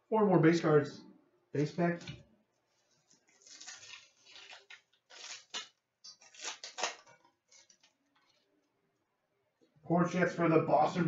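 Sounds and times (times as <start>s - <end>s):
wrapper crinkling and tearing: 3.0s - 8.4s.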